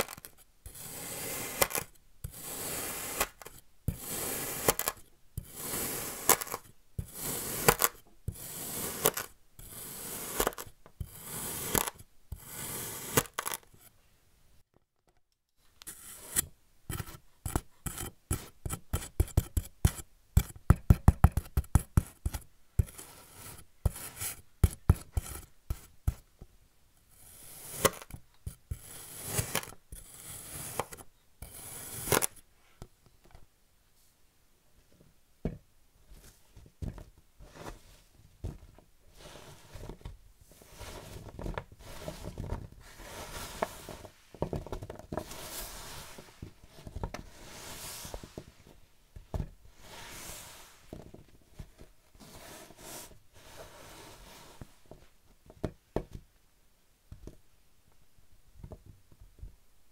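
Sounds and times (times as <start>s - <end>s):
knife slicing kinetic sand: 0.0s - 13.8s, 15.8s - 26.2s, 27.1s - 32.4s, 40.6s - 41.2s, 41.8s - 44.2s, 45.2s - 48.3s, 49.8s - 50.9s, 52.2s - 54.8s.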